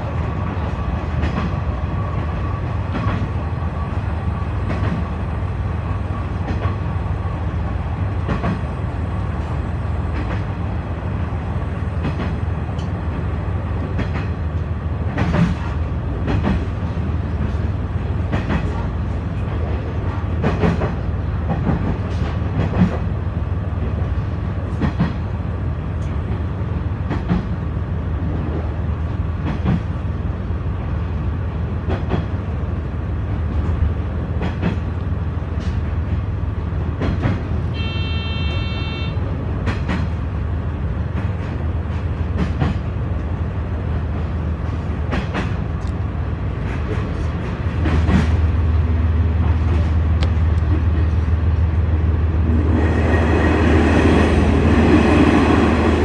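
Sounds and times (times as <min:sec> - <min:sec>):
railcar engine rumble: 0:00.0 - 0:56.0
wheels clacking over rail joints: 0:13.9 - 0:23.1, 0:39.5 - 0:40.4, 0:41.0 - 0:43.4.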